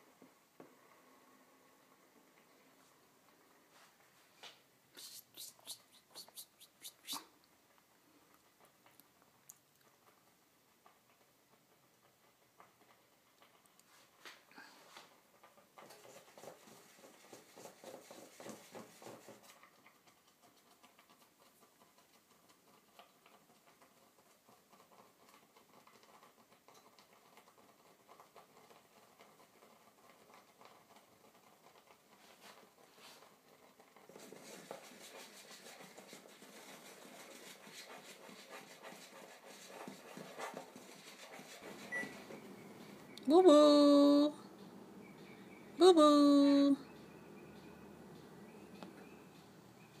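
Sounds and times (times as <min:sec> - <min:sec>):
cat clicks and rustles: 0:05.3 - 0:42.4.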